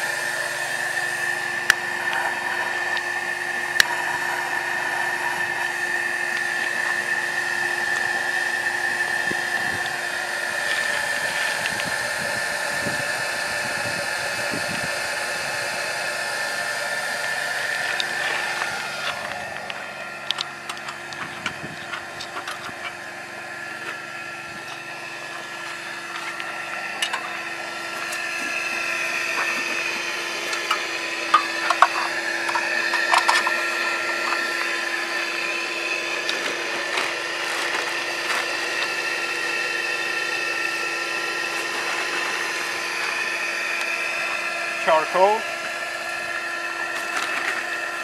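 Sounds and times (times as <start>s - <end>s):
electric blower motor whining: 0.0s - 48.0s
metal lid clanks and rattles: 30.5s - 34.5s.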